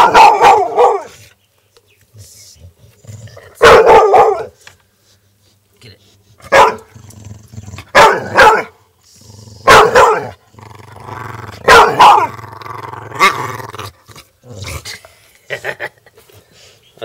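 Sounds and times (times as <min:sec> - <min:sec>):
dog barking: 0:00.0 - 0:01.1, 0:03.6 - 0:04.6, 0:06.5 - 0:06.9, 0:07.9 - 0:08.8, 0:09.7 - 0:10.4, 0:11.6 - 0:12.3
dog growling low: 0:02.7 - 0:03.6, 0:06.9 - 0:08.0, 0:09.1 - 0:09.7, 0:10.4 - 0:15.0.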